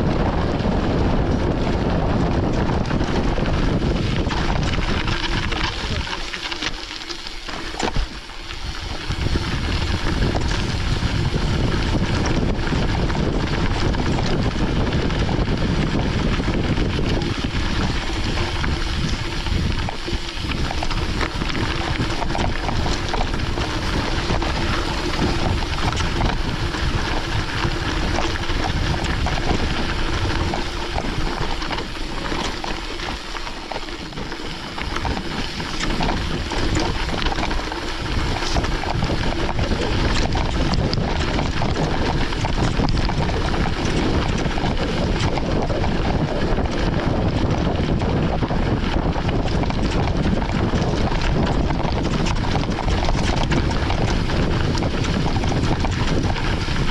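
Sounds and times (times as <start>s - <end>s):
bike tyres on gravel: 0.0s - 56.9s
wind buffeting microphone: 0.0s - 56.9s
bike knocks and rattles: 0.1s - 56.9s.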